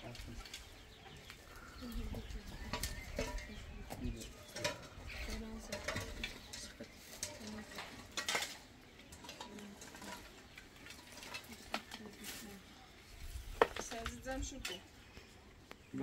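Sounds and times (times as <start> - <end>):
dishes and utensils clinking: 2.6 - 12.2.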